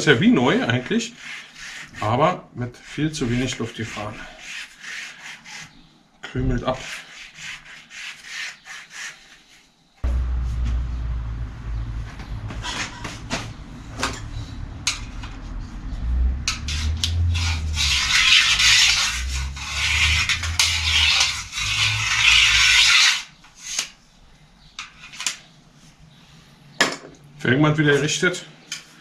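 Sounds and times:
rubber scraping bicycle rim: 1.1s - 5.9s, 6.7s - 9.7s, 16.5s - 24.0s.

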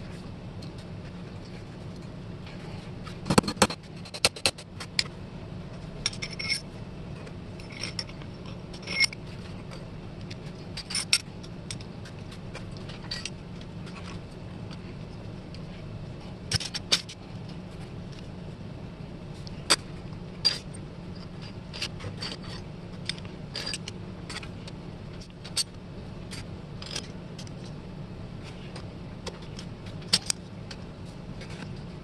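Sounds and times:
steady low hum: 0.0s - 32.0s
metal parts clinking and scraping: 3.2s - 5.1s, 6.0s - 14.2s, 16.5s - 17.5s, 19.4s - 27.8s, 28.7s - 30.8s.

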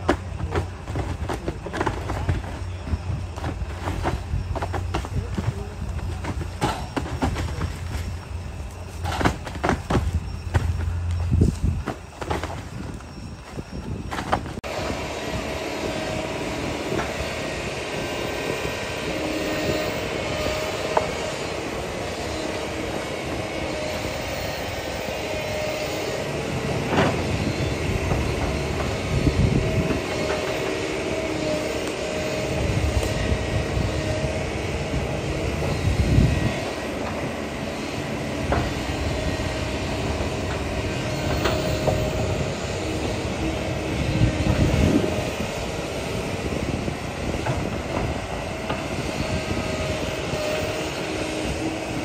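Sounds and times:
heavy thuds and clatter: 0.0s - 14.6s
excavator diesel engine running: 0.0s - 52.0s.

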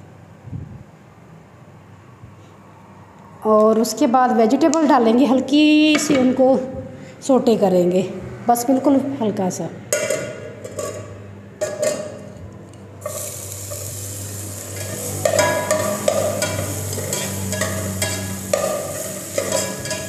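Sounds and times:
metal spoon scraping pot: 13.0s - 20.0s
vegetables sizzling in oil: 13.0s - 20.0s.

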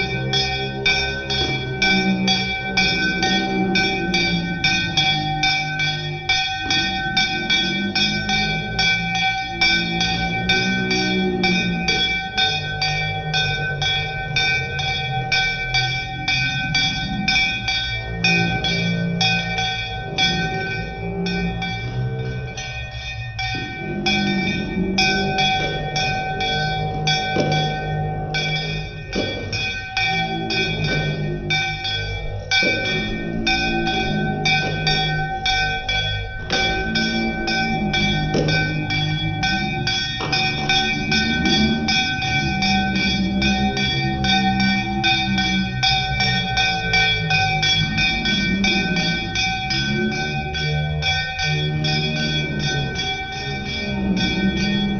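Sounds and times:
metal hand bell ringing: 0.0s - 54.9s
hands clapping: 36.5s - 37.2s.

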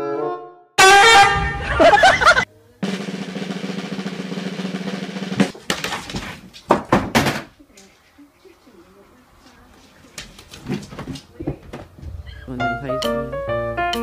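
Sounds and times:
blaring honk-like blast: 0.0s - 1.9s
snare drum roll: 2.2s - 5.6s.

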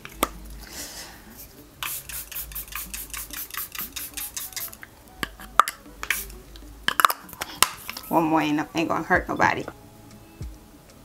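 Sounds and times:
spray bottle spritzes: 1.8s - 4.8s, 6.0s - 6.4s.

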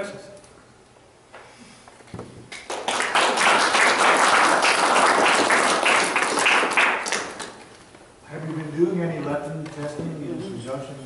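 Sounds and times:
audience applauding: 2.6s - 7.6s.

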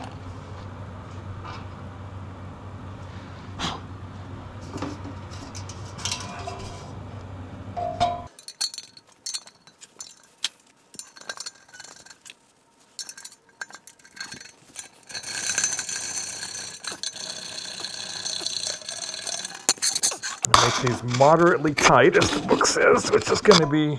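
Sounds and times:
light metallic clinks and taps: 8.0s - 12.4s, 13.0s - 20.3s.

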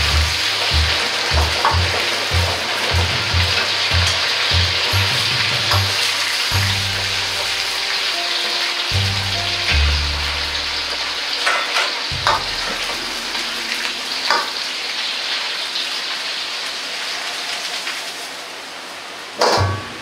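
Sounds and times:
sauce sizzling in a wok: 0.0s - 18.5s
loud metal clank: 11.4s - 14.9s, 19.4s - 20.0s.

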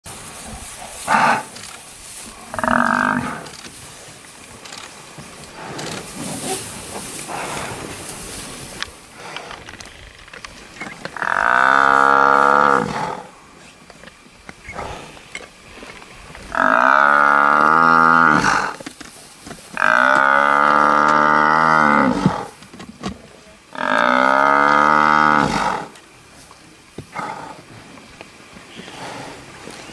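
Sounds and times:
buffalo bellowing: 11.1s - 13.3s, 16.5s - 18.8s.

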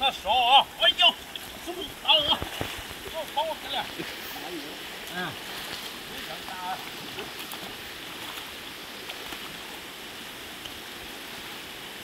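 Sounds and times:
creek flowing over rocks: 0.0s - 12.0s
splashes from wading feet: 1.2s - 9.9s.

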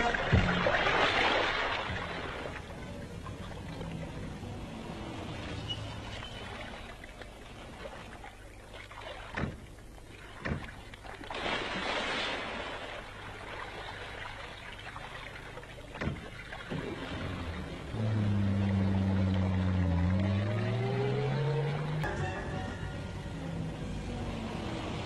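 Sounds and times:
low pitched drone: 2.0s - 7.0s, 16.8s - 25.0s
sharp knocks: 9.4s - 9.7s.

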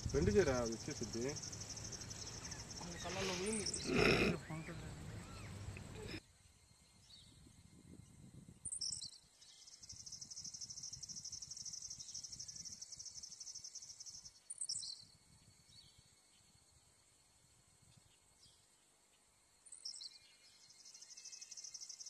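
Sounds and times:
pulsing insect trill: 0.0s - 17.6s.

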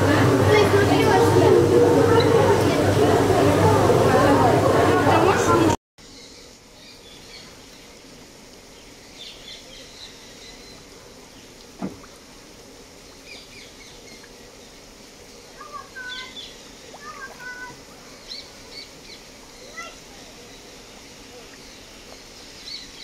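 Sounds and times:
outdoor background hiss: 0.0s - 23.0s
birds chirping: 13.1s - 23.0s.

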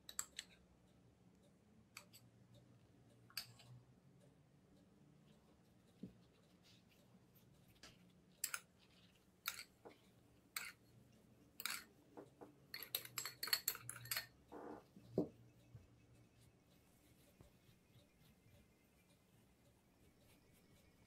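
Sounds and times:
utensils scraping and tapping: 3.3s - 3.8s, 5.3s - 21.0s.

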